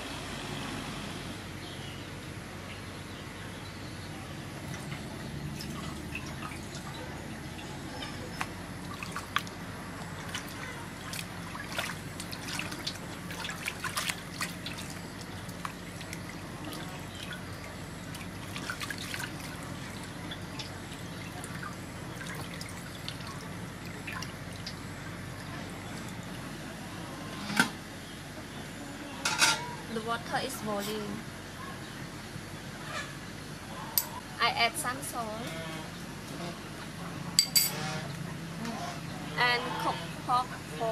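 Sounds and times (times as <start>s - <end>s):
steady low hum: 0.0s - 40.9s
water splashing in metal basin: 4.6s - 26.4s.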